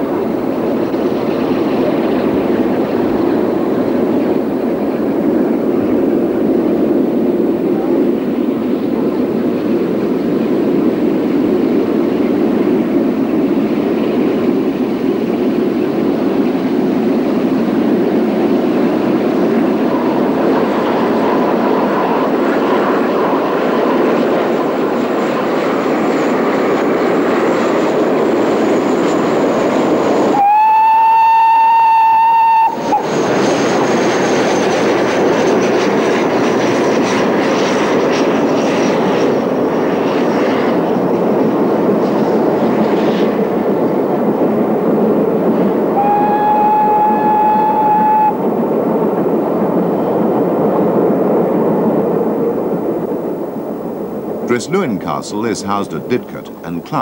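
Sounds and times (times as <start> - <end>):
steam train running: 0.0 - 53.1
steam whistle: 30.3 - 33.1, 45.9 - 48.4.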